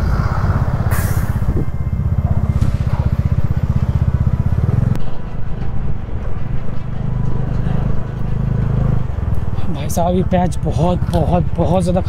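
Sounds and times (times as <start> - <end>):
motorcycle engine running: 1.5 - 5.3.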